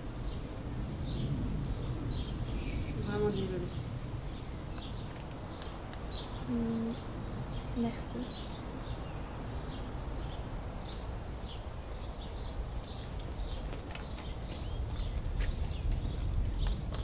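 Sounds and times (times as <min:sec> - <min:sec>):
small birds chirping: 0:00.2 - 0:17.0.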